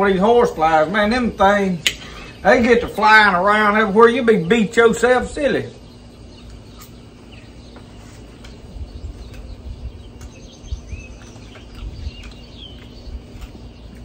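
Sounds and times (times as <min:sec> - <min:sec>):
faint bird chirps: 0:04.2 - 0:14.0.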